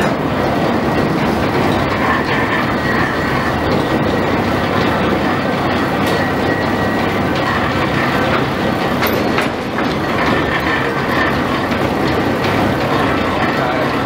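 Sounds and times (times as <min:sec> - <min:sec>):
machinery rumbling and rattling: 0:00.0 - 0:14.0.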